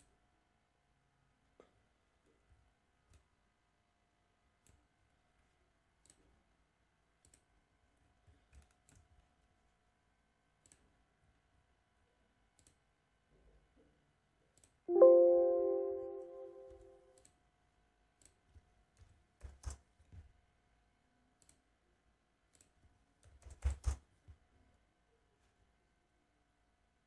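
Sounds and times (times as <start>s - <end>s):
computer mouse clicks: 4.6s - 4.9s, 6.0s - 6.3s, 7.2s - 7.6s, 8.3s - 9.4s, 10.6s - 11.0s, 12.5s - 12.9s, 14.5s - 14.8s, 18.2s - 20.3s, 21.4s - 21.7s, 22.5s - 24.1s
bell-like chime: 14.9s - 16.9s.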